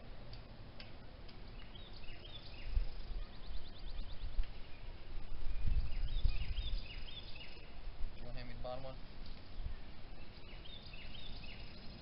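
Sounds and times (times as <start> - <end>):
small birds chirping: 0.3 - 12.0
low gusting rumble: 2.5 - 11.6.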